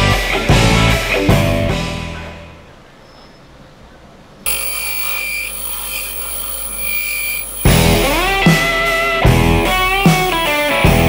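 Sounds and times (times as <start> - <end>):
music: 0.0 - 2.6, 7.7 - 11.0
bench grinder grinding steel: 4.5 - 8.7.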